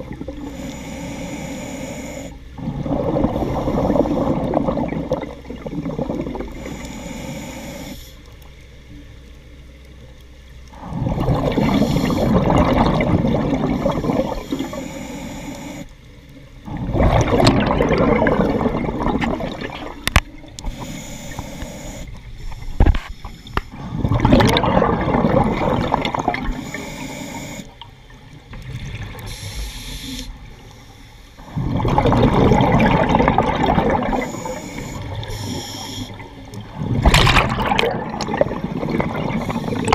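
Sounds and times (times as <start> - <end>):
exhaled bubbles underwater: 0.0 - 0.7, 2.5 - 6.9, 10.7 - 15.8, 16.5 - 30.6, 31.4 - 39.9
regulator inhalation hiss: 0.5 - 2.4, 6.5 - 8.3, 11.6 - 12.4, 13.8 - 15.9, 20.6 - 23.8, 26.4 - 27.8, 29.2 - 31.5, 34.2 - 36.4, 39.3 - 39.9.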